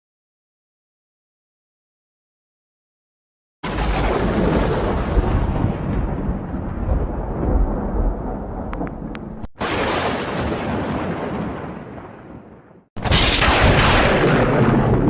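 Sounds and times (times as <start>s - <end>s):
deep thunder-like rumbling: 3.6s - 15.0s.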